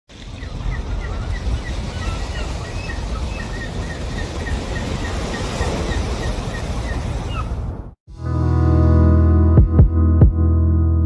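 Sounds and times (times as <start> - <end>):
birds chirping: 0.1 - 7.8.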